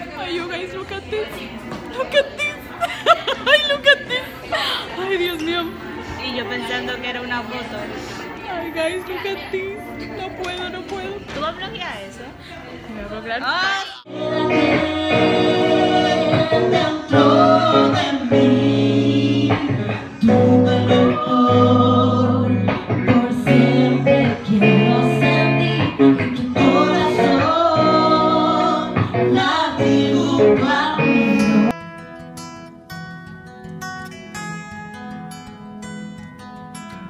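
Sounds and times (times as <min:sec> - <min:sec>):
plucked guitar accompaniment: 0:09.3 - 0:11.4, 0:14.1 - 0:37.0
woman singing into a microphone: 0:13.6 - 0:31.7.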